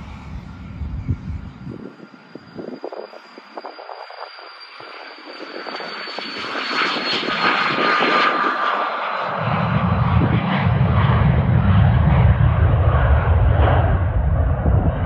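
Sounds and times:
deep rumble: 0.0s - 2.8s, 9.4s - 15.0s
jet engine roar at takeoff: 0.0s - 15.0s.

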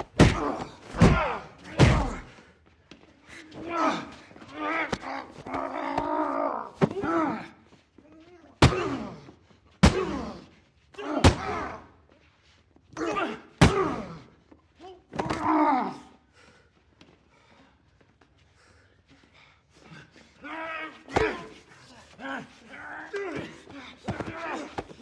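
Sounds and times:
punch impacts: 0.0s - 2.3s, 8.6s - 9.0s, 9.8s - 10.3s, 11.2s - 11.7s, 13.6s - 14.1s
men grunting and groaning: 0.0s - 2.4s, 3.3s - 7.7s, 8.5s - 12.0s, 12.9s - 14.4s, 15.1s - 16.3s, 19.8s - 25.0s.

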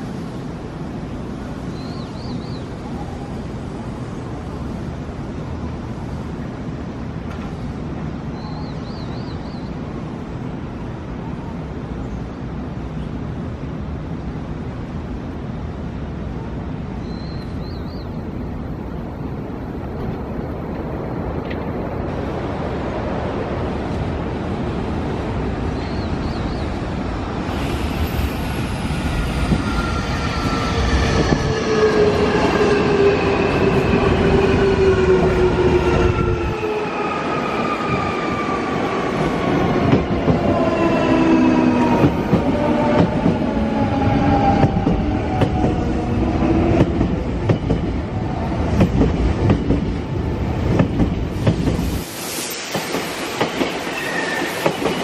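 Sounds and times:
wheels rumbling and clicking on rails: 0.0s - 55.0s.

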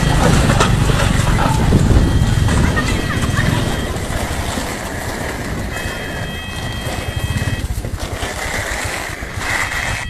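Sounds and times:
high steady tones: 0.0s - 7.8s
road and wind noise: 0.0s - 10.0s.

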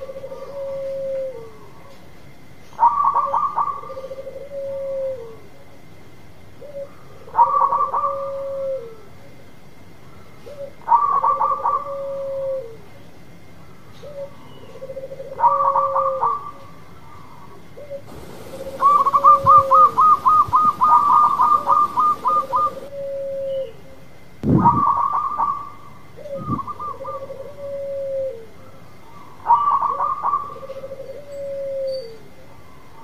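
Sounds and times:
dove cooing: 0.0s - 1.8s, 2.8s - 5.4s, 6.6s - 9.0s, 14.0s - 16.6s, 17.2s - 23.8s, 26.2s - 28.6s, 29.5s - 32.2s.

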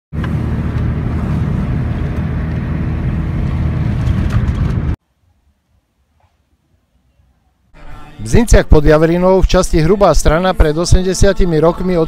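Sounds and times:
car road and engine noise: 0.1s - 5.0s.

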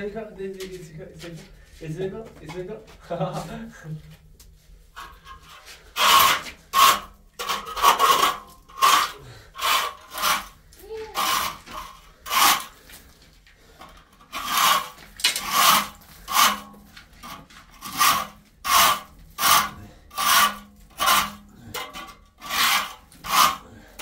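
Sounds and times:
rasping scraping strokes: 4.9s - 24.0s.

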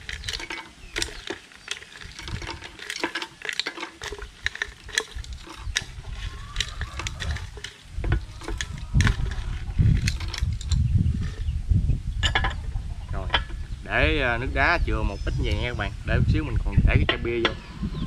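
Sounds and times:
ice cubes clinking on glass: 0.0s - 9.4s.

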